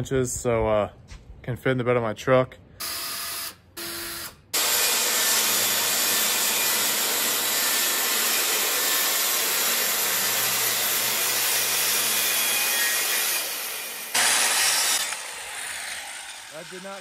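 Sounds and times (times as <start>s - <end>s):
cordless drill whirring: 2.8s - 6.1s, 13.4s - 17.0s
circular saw cutting wood: 2.8s - 17.0s.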